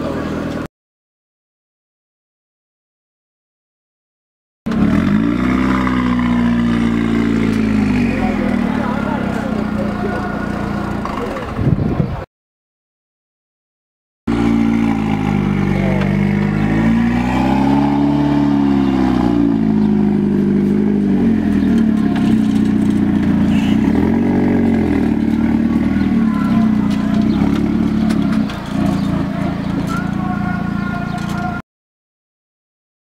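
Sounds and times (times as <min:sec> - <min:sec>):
sports car engine idling and revving: 0:00.0 - 0:00.7, 0:04.7 - 0:11.7, 0:14.3 - 0:31.6.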